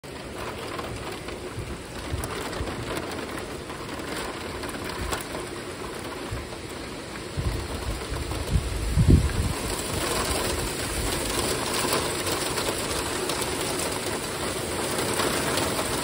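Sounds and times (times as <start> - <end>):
ice rain pattering: 0.0 - 16.0
ice pellets ticking: 9.3 - 16.0.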